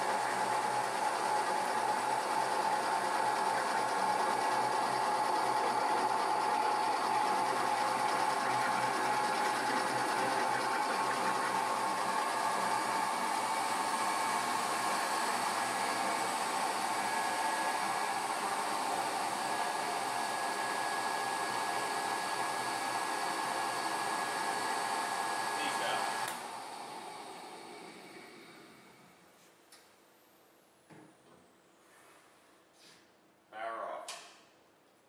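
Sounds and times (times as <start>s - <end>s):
mixer motor and gear whir: 0.0s - 29.1s.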